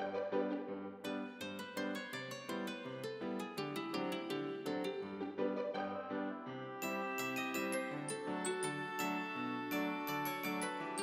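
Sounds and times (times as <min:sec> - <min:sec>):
light melody of ringing notes: 0:01.1 - 0:05.3, 0:06.7 - 0:11.0.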